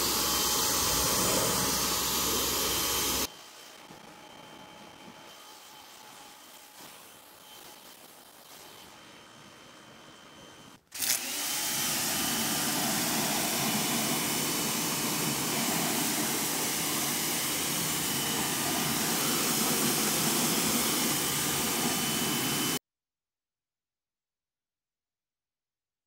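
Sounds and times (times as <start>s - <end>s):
pressure washer spraying: 0.0s - 3.3s, 11.0s - 22.8s
faint steady whine: 0.0s - 10.8s.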